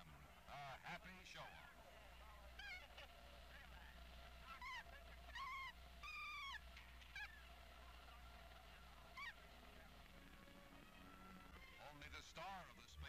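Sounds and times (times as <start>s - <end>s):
chimpanzee high-pitched cries: 4.4s - 7.5s, 9.1s - 9.4s.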